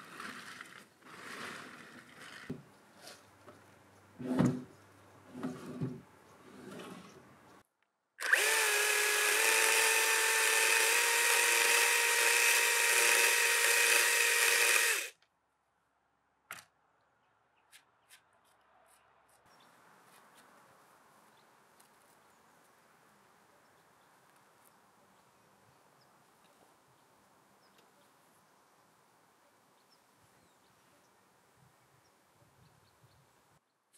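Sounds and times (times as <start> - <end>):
electric drill whining: 8.2 - 15.1.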